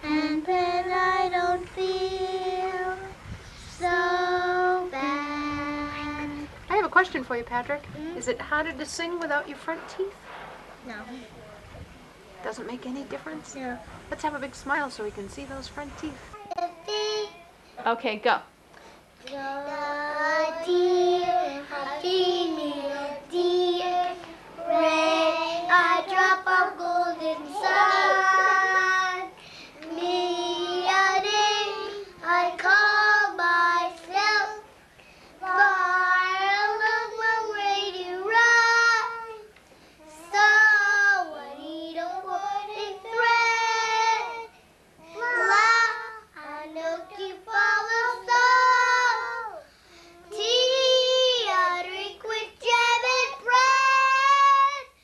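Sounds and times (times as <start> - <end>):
children singing: 19.3 - 34.6, 40.2 - 44.5, 45.1 - 49.7, 50.3 - 55.0.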